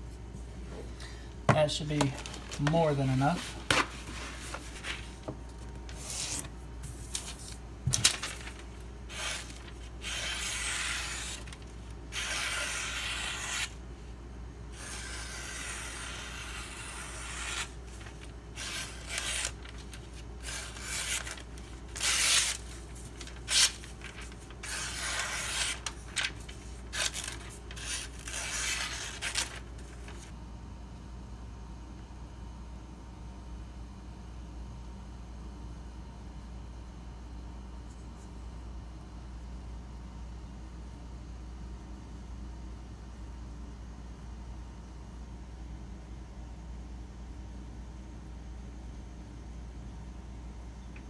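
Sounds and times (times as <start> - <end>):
knife slicing paper: 5.9 - 13.8, 14.8 - 30.3.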